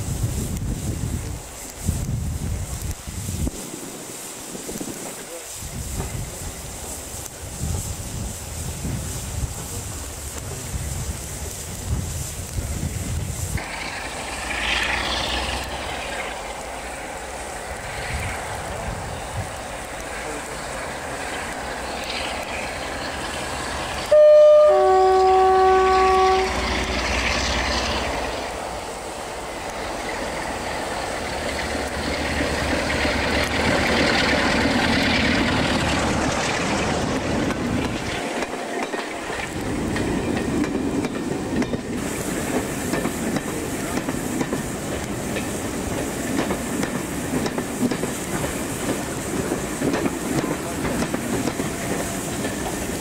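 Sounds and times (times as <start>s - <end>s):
coaches rolling over rail joints: 0.0s - 53.0s
diesel locomotive engine passing: 4.2s - 53.0s
two-tone locomotive horn: 24.0s - 27.1s.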